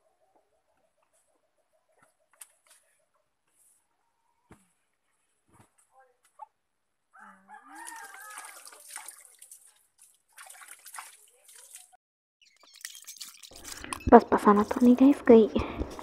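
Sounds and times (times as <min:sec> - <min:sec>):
rooster crowing: 0:07.1 - 0:08.8
water splashing in a basin: 0:07.7 - 0:13.8.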